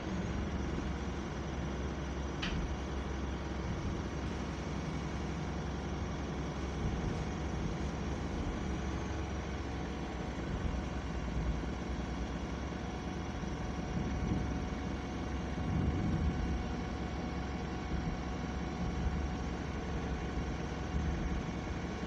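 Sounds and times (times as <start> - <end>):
bus engine rumble: 0.0 - 22.0.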